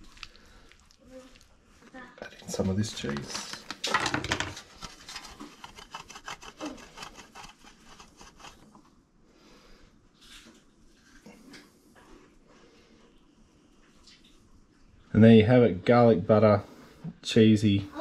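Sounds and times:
cheese grated on metal grater: 5.4 - 8.6.

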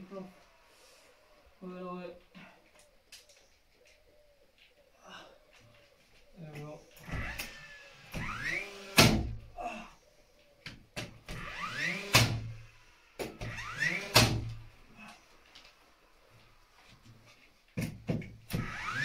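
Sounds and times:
nail gun bang: 7.0 - 9.4, 11.0 - 12.6, 13.2 - 14.7, 17.8 - 19.0
nail gun motor whirr: 7.0 - 9.4, 11.2 - 14.9, 18.5 - 19.0.

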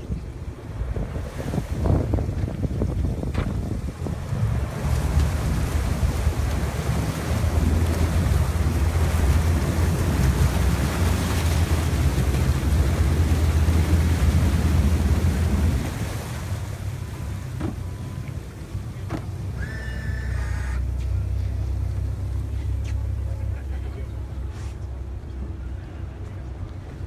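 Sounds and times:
wind buffeting microphone: 0.0 - 17.8
churning prop wash: 0.0 - 27.0
outboard engines droning: 0.0 - 27.0.

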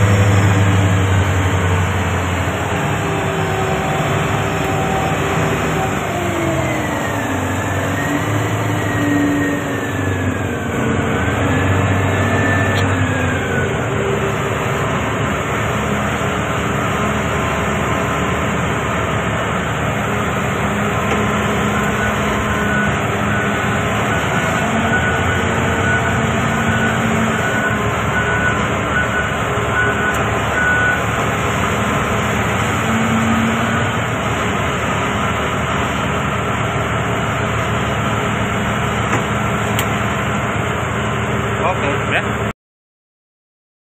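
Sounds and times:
whine gliding in pitch: 0.0 - 18.8
dump truck diesel engine: 0.0 - 42.5.

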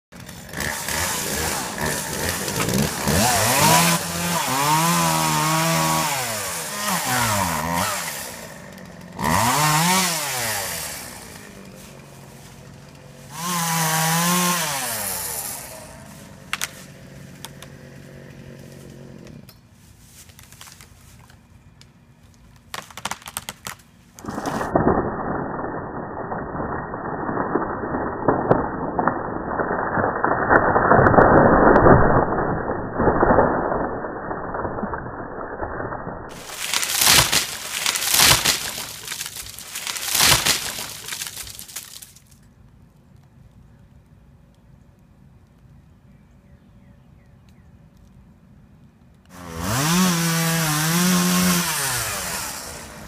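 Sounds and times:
wood cracking: 0.1 - 6.4, 7.0 - 17.8, 18.6 - 35.6, 36.2 - 43.3
chainsaw cutting and revving: 0.1 - 19.5, 36.3 - 42.0, 49.3 - 53.0
tree falling with muffled rushing: 22.6 - 25.0, 36.3 - 42.4.

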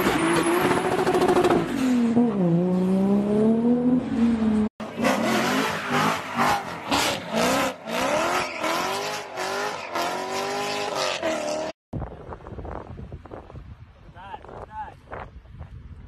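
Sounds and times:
car engine revving: 0.4 - 11.8.

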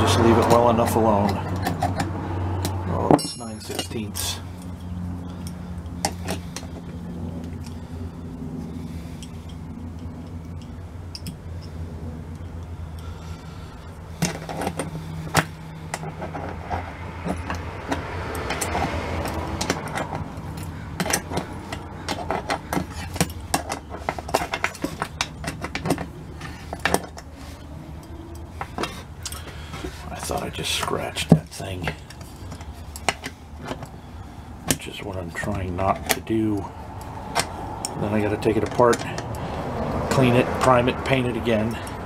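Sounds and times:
steady low hum: 0.0 - 42.0
metal clinks of wrench and nuts: 2.6 - 6.7.

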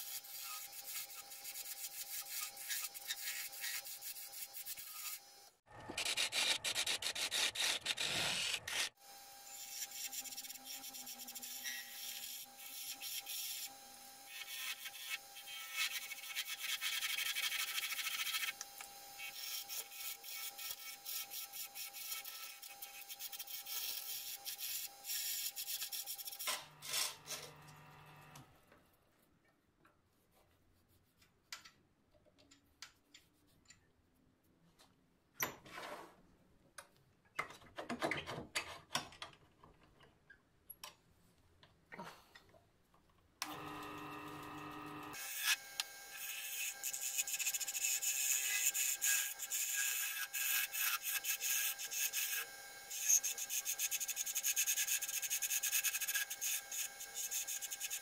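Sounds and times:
lathe motor whine: 43.4 - 46.9.

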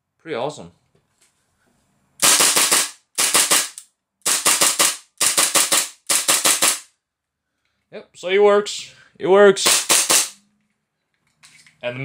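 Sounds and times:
airsoft pistol rapid shots: 2.2 - 6.9, 9.6 - 10.4.

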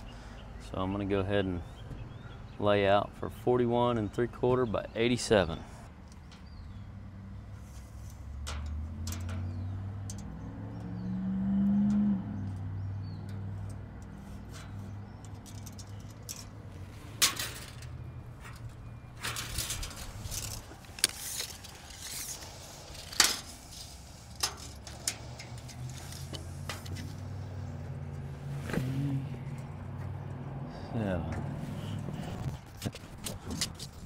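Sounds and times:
light metallic rattles: 7.5 - 11.1, 11.8 - 28.3.

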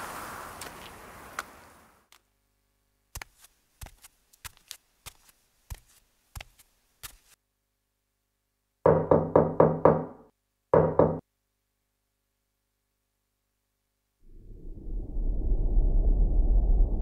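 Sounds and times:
footsteps crunching on dry leaves: 3.2 - 7.4.

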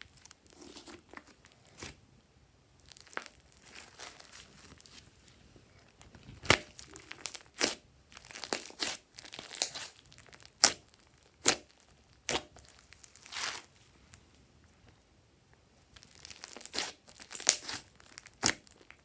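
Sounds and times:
slime crackling and popping: 2.8 - 5.0, 5.9 - 13.7, 15.9 - 19.0.

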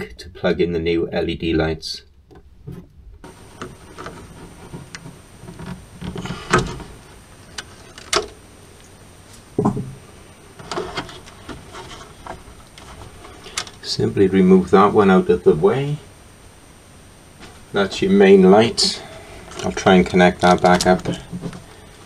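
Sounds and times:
sharp clicks and knocks: 2.3 - 8.4
hands rubbing plastic parts: 2.4 - 9.6, 10.5 - 13.9, 17.4 - 22.0.

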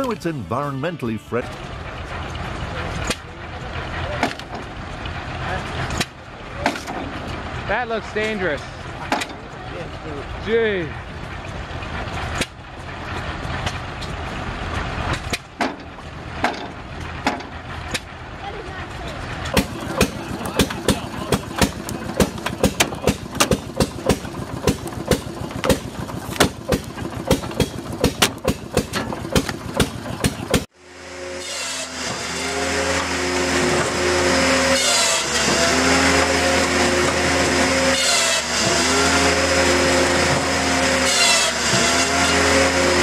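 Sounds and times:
stationary engine exhaust beats: 0.0 - 43.0
machinery drone with whooshing: 16.0 - 43.0.

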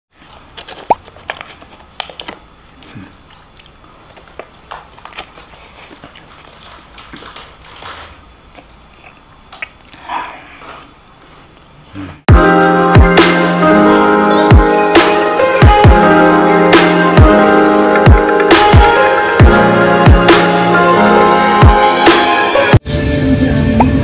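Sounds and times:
small crunches and clicks: 0.2 - 10.0
person chewing and biting: 0.5 - 10.0.

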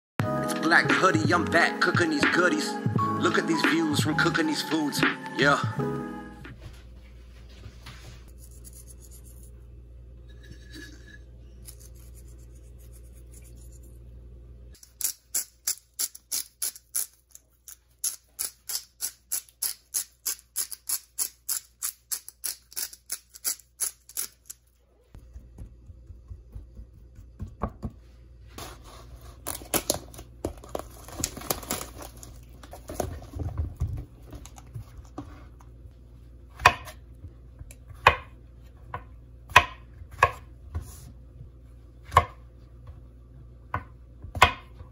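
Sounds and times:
seasoning shaker strokes: 7.9 - 9.7, 11.6 - 14.1
knife chopping on wooden board: 36.6 - 37.0, 39.0 - 40.5, 42.1 - 42.4, 43.8 - 44.8.

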